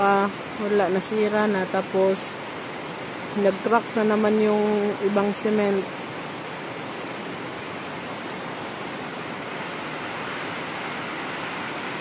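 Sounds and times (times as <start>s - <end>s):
flooded river rushing: 0.0s - 12.0s
heavy rain pouring: 0.0s - 12.0s.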